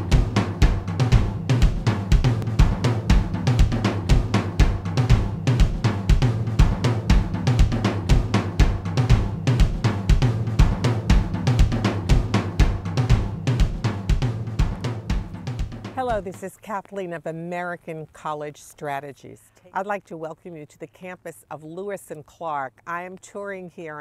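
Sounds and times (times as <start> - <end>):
low bass line: 0.0 - 16.2
drum kit beat: 0.0 - 16.4.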